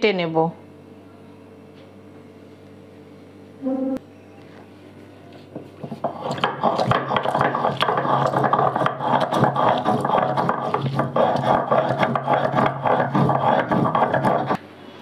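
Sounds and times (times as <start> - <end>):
chillies ground on stone slab: 5.5 - 14.6.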